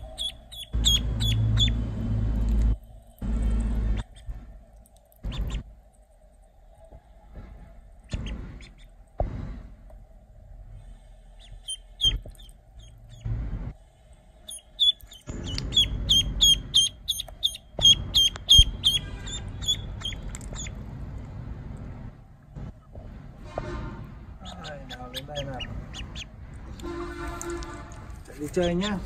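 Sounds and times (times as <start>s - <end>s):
duckling peeping: 0.0s - 4.4s, 5.1s - 5.7s, 8.1s - 9.0s, 11.3s - 13.3s, 14.4s - 21.0s, 24.3s - 29.0s.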